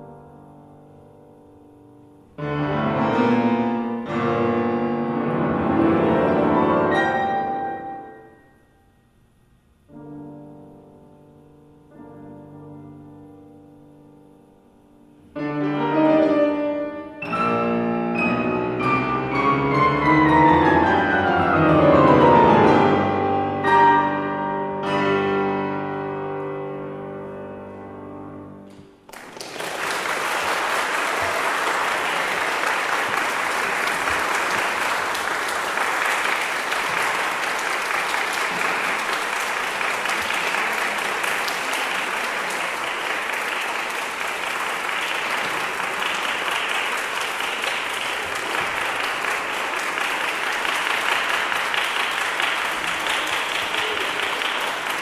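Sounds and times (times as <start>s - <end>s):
grand piano playing: 0.0s - 8.6s, 9.9s - 29.1s, 31.2s - 55.0s
audience applause: 29.1s - 55.0s.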